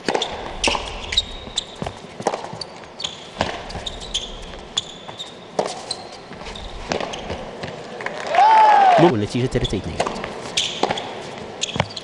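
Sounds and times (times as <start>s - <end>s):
tennis ball hit and bouncing: 0.0s - 2.7s, 3.4s - 3.9s, 6.9s - 7.8s, 10.0s - 12.0s
sneakers squeaking on court: 0.0s - 7.9s, 9.6s - 12.0s.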